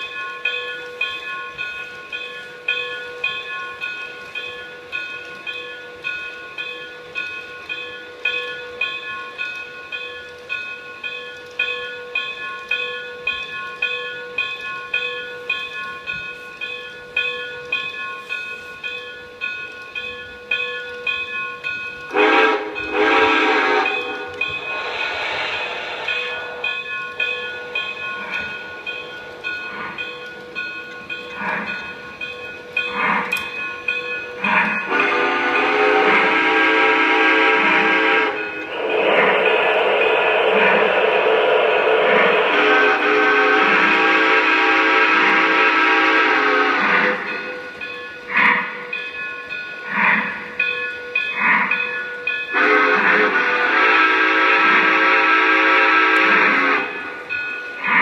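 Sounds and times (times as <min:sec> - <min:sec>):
steam whistle blowing: 0:22.1 - 0:27.4, 0:34.9 - 0:47.2, 0:52.5 - 0:57.2
steam chuffs: 0:22.1 - 0:30.6, 0:34.4 - 0:47.9.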